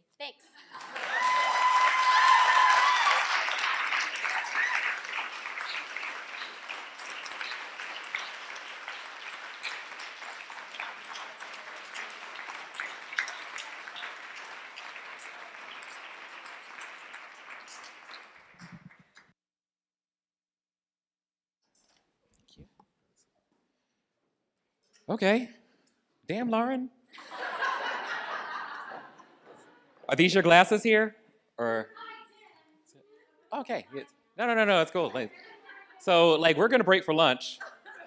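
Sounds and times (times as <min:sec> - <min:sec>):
audience applauding: 0:00.7 - 0:19.3.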